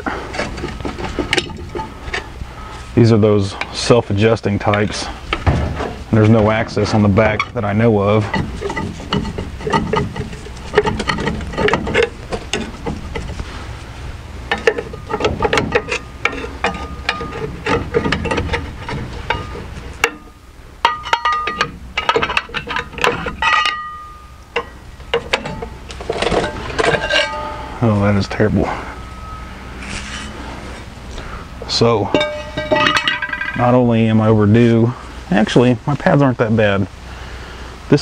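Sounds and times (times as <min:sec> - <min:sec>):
metal knocks and clanks: 0:00.0 - 0:02.4, 0:04.6 - 0:13.4, 0:14.4 - 0:30.4, 0:31.7 - 0:34.2.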